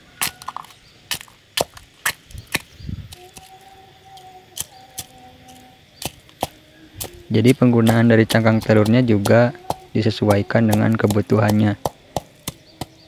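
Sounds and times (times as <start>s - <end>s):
eggshells pounded in coconut shell: 0.2s - 3.5s, 6.0s - 13.0s.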